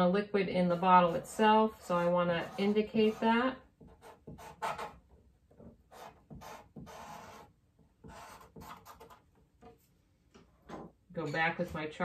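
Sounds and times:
blending stump rubbing on paper: 0.7s - 5.0s.

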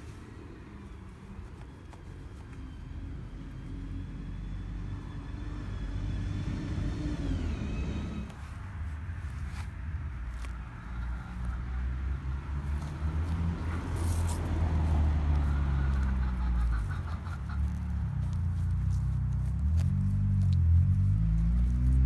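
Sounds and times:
vehicle engine rumble: 0.0s - 22.0s
footsteps through dry grass: 8.2s - 22.0s.

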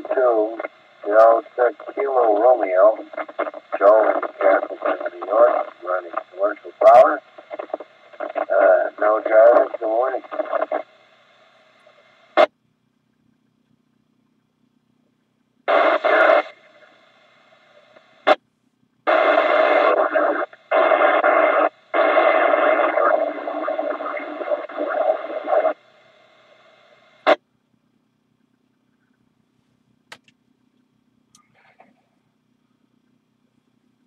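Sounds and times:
scratchy radio noise bursts: 0.0s - 11.0s, 15.7s - 18.4s, 19.1s - 27.4s
sharp radio clicks: 0.0s - 11.0s, 15.7s - 18.4s, 19.1s - 25.8s.

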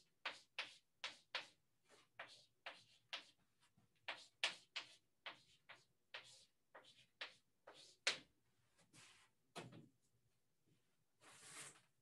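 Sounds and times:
chalk tapping and scratching: 0.0s - 8.3s.

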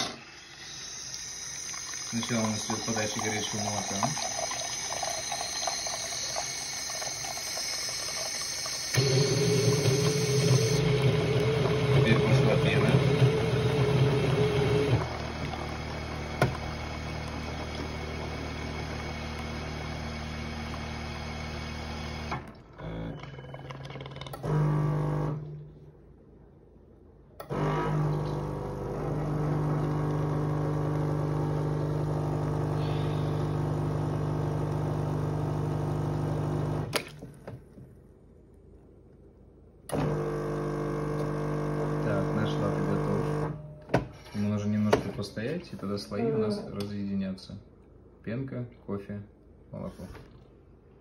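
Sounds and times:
coffee machine pump humming: 0.0s - 25.4s, 27.4s - 37.6s, 39.9s - 43.6s.

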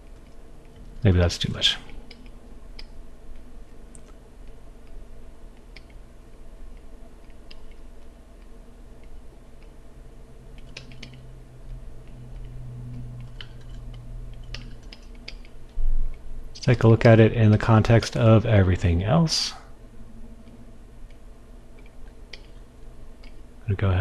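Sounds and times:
low steady hum: 0.0s - 24.0s
computer keyboard clicks: 7.2s - 7.8s, 10.6s - 11.2s, 12.0s - 15.6s.

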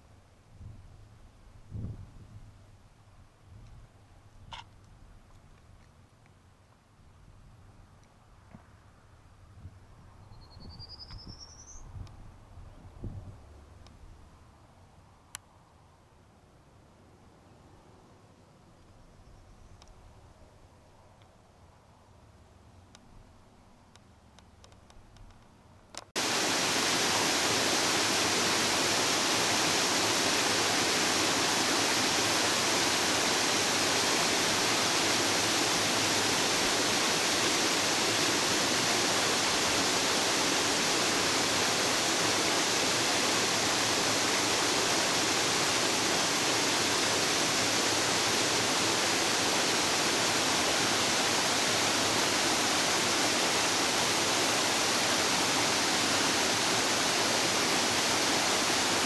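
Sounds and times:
waterfall rushing over rocks: 26.2s - 59.0s.

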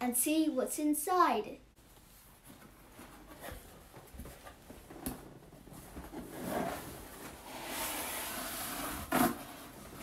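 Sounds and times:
cardboard scraping: 5.8s - 10.0s.

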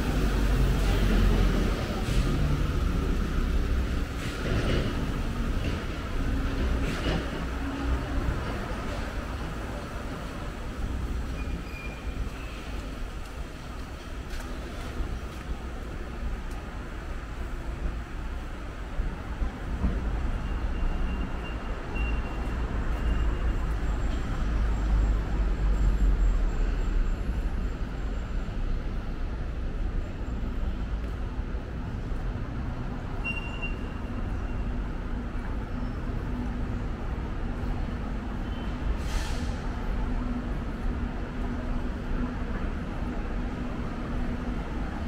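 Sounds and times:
vehicles running: 0.0s - 11.4s
short hiss: 39.0s - 39.6s.

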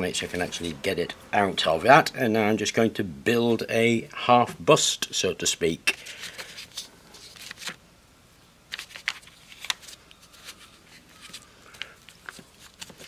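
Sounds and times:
plastic film crinkling: 8.7s - 13.0s.

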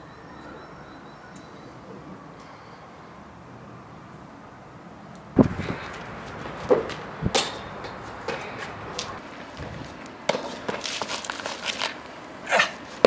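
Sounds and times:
sneakers landing on concrete: 5.4s - 11.9s
footsteps: 5.4s - 12.0s.

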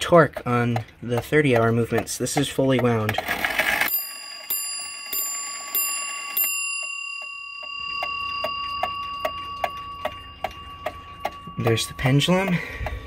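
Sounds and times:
clock ticking: 0.0s - 13.0s
clock bell striking: 3.6s - 13.0s.

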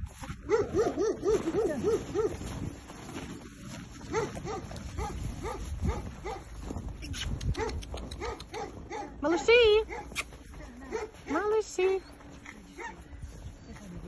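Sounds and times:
puppies whimpering and yelping: 11.9s - 14.0s.

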